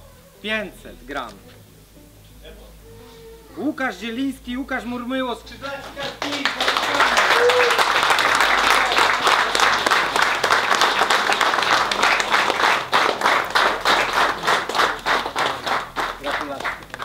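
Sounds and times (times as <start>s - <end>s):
crowd applauding: 5.6s - 17.0s.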